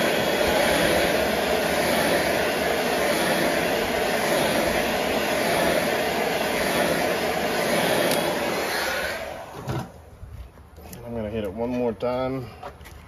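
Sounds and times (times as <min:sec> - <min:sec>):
heat gun blowing air: 0:00.0 - 0:10.0.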